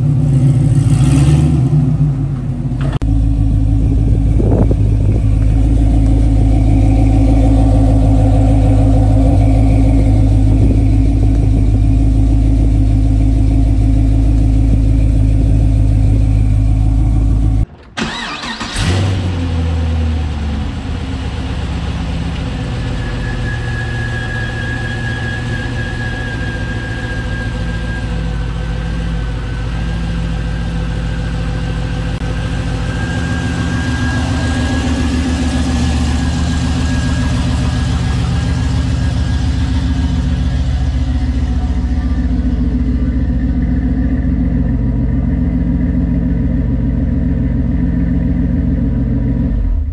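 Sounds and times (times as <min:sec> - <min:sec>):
car engine idling: 0:00.0 - 0:49.9
engine starting with a flare: 0:17.7 - 0:20.0
thin high whistle: 0:22.8 - 0:28.9, 0:32.2 - 0:41.3.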